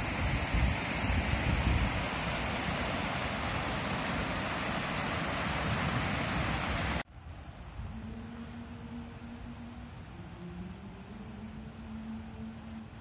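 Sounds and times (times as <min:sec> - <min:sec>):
stream rushing over boulders: 0:00.0 - 0:08.8.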